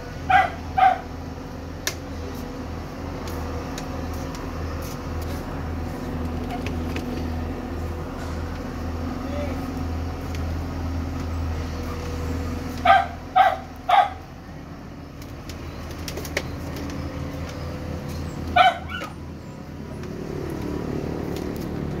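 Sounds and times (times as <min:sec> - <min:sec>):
dog barking: 0:00.3 - 0:01.1, 0:12.8 - 0:14.2, 0:18.6 - 0:19.1.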